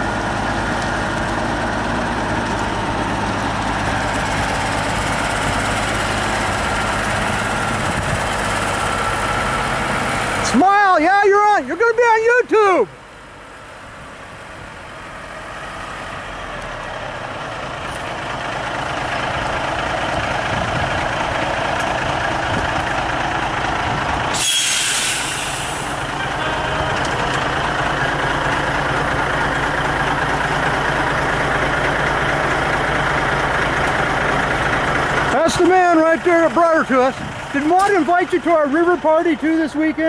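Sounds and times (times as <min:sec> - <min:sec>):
truck diesel engine running: 0:00.0 - 0:40.0
air brake hiss: 0:24.3 - 0:26.0.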